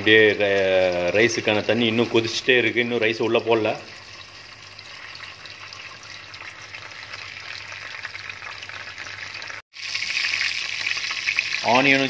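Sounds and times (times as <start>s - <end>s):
oil sizzling in a pan: 3.5s - 12.0s.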